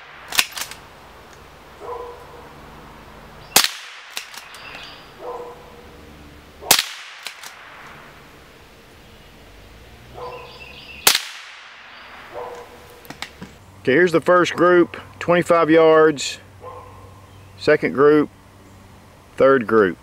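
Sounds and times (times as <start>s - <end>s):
rifle shots: 0.0s - 0.9s, 3.5s - 4.8s, 6.6s - 8.1s, 11.0s - 12.4s.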